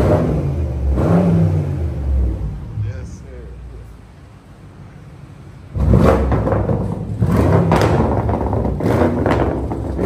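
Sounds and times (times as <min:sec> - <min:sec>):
car engine revving loudly: 0:00.0 - 0:02.7, 0:05.7 - 0:10.0
exhaust cracks: 0:05.7 - 0:10.0.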